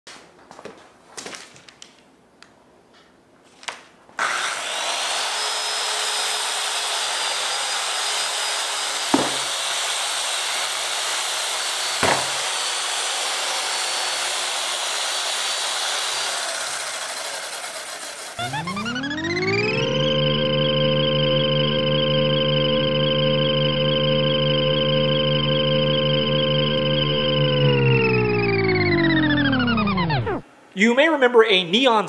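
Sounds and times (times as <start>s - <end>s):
circular saw cutting plastic sheet: 4.2s - 19.3s
synth music: 18.4s - 30.5s.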